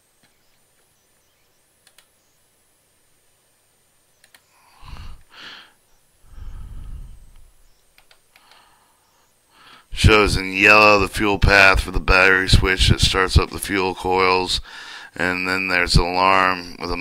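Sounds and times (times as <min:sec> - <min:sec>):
computer mouse clicks: 0:01.8 - 0:02.1, 0:04.2 - 0:04.5, 0:07.3 - 0:08.7
breathy puffs: 0:04.5 - 0:07.5
low rumbling sigh: 0:04.6 - 0:07.6.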